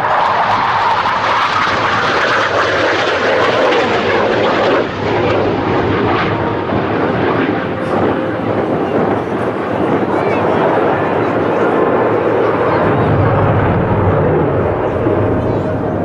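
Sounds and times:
fighter jet engine roar: 0:00.0 - 0:16.0.

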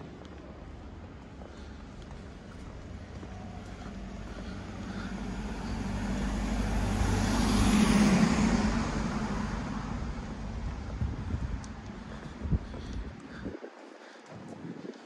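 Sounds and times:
minibus driving past: 0:02.7 - 0:11.8.

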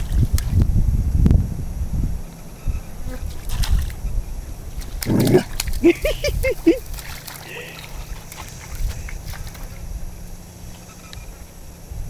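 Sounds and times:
water sloshing in puddle: 0:00.0 - 0:00.6, 0:03.3 - 0:11.2
wind rumble on microphone: 0:00.0 - 0:12.0
dog whining: 0:05.0 - 0:06.0.

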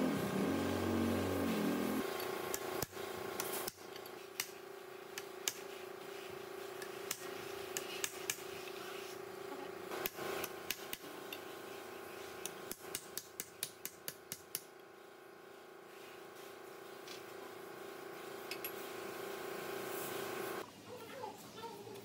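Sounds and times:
steady hum: 0:00.0 - 0:02.2.

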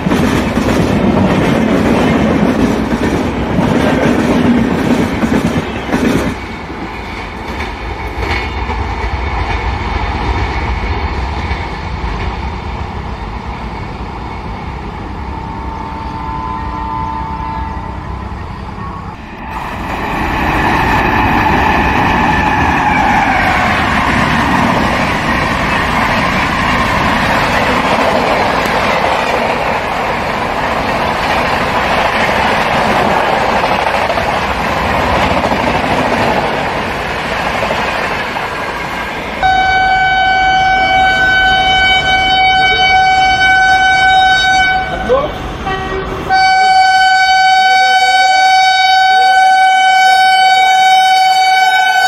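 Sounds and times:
train coaches rattling: 0:00.0 - 0:52.0
train horn: 0:15.2 - 0:18.2, 0:39.4 - 0:52.0
locomotive horn long blast: 0:15.3 - 0:18.2, 0:39.4 - 0:52.0.

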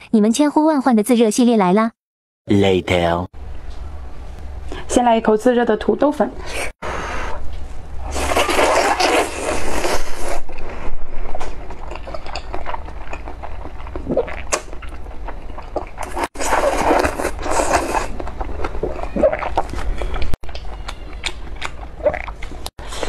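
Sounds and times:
person slurping noodles: 0:08.0 - 0:11.0, 0:16.0 - 0:18.2
wet chewing clicks: 0:11.4 - 0:22.7.

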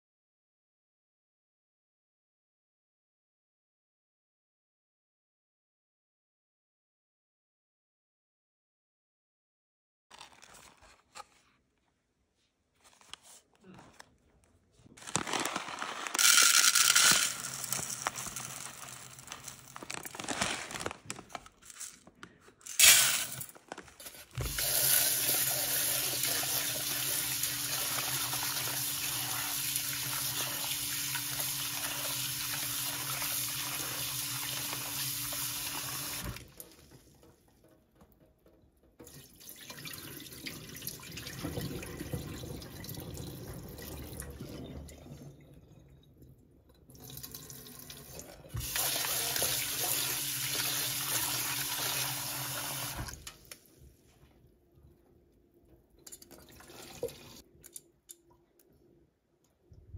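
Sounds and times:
grains poured into metal pot: 0:15.0 - 0:20.8
water poured into sink: 0:24.4 - 0:37.4, 0:39.0 - 0:53.6, 0:56.2 - 0:57.4
tap water running into pot: 0:24.4 - 0:37.6, 0:39.0 - 0:45.0, 0:46.9 - 0:53.3.

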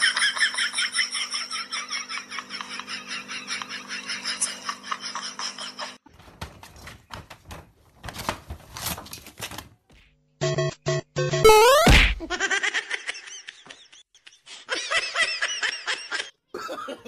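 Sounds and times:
cat tearing paper screen: 0:06.1 - 0:09.7
person laughing: 0:11.9 - 0:17.0.

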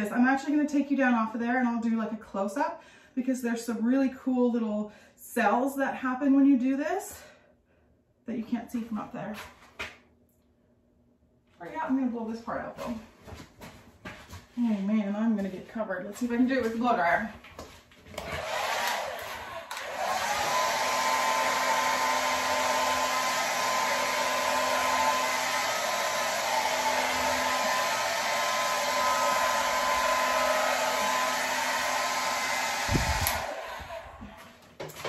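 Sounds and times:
hair dryer running: 0:18.1 - 0:35.0.

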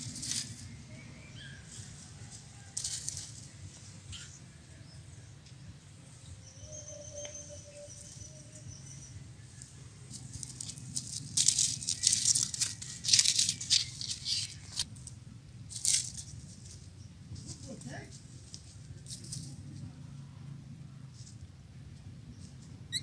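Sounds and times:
dry grass rustling and crackling: 0:00.0 - 0:00.9, 0:01.7 - 0:04.2, 0:09.4 - 0:19.7.

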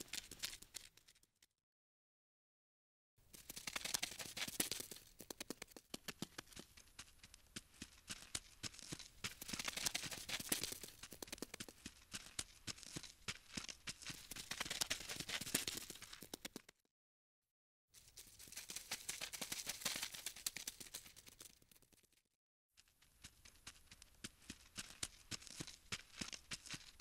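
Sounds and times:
insect crawling scratching and ticking: 0:03.4 - 0:05.8, 0:09.2 - 0:11.7.

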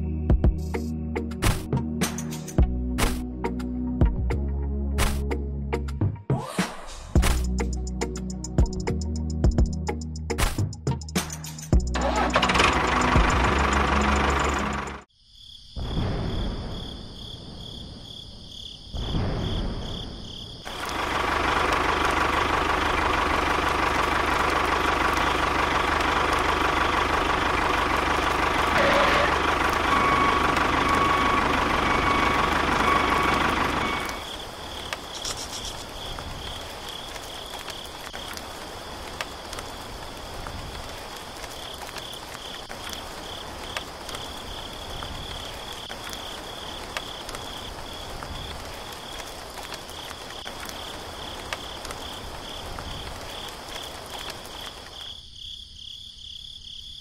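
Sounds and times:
crickets chirping: 0:15.1 - 0:28.5, 0:29.4 - 0:57.0.

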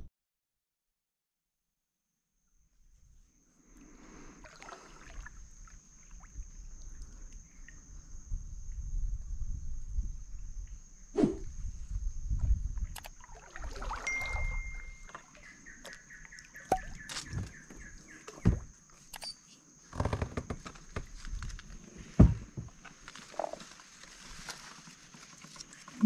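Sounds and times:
leaves brushing: 0:22.8 - 0:26.0.

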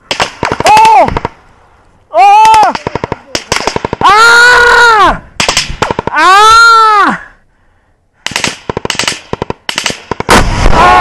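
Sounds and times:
small-arms fire in bursts: 0:00.0 - 0:01.4, 0:02.4 - 0:04.2, 0:05.4 - 0:06.2, 0:08.2 - 0:11.0
man shouting: 0:00.6 - 0:01.2, 0:02.1 - 0:03.3, 0:04.0 - 0:05.3, 0:06.1 - 0:07.3.

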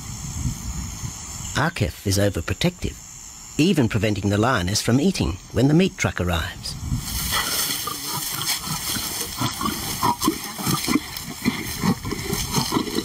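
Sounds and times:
lions growling and snarling: 0:07.2 - 0:13.0.

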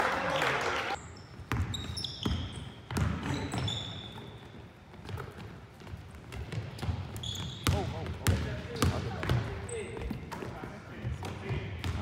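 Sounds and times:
sneaker squeaks on floor: 0:01.0 - 0:10.5.

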